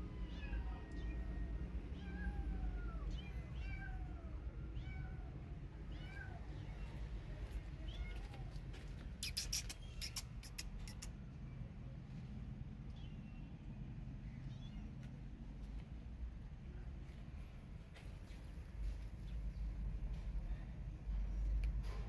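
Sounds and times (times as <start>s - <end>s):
kitten mewing: 9.1s - 11.2s
sharp clicks: 9.2s - 11.2s.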